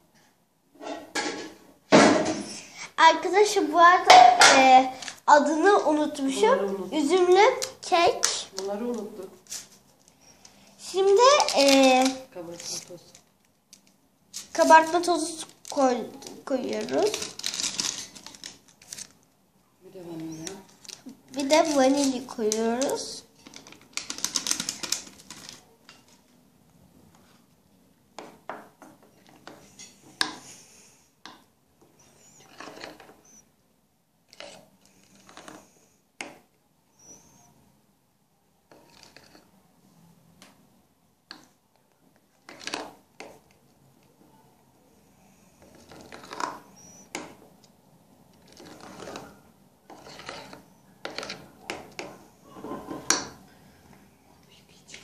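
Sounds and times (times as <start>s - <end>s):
paper sachet tearing and rustling: 10.9s - 13.3s, 14.3s - 19.2s, 20.7s - 25.6s
spoon stirring thick batter: 32.4s - 33.2s, 34.3s - 35.6s, 45.6s - 47.7s, 48.3s - 52.3s.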